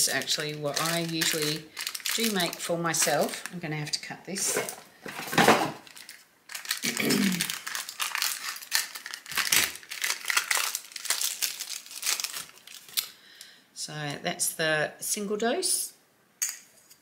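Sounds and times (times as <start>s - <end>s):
plastic wrapping crinkling: 0.0s - 13.2s.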